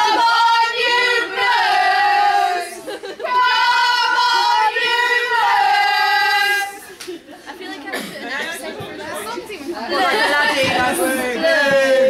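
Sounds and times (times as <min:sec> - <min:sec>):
supporters singing a chant: 0:00.0 - 0:06.8.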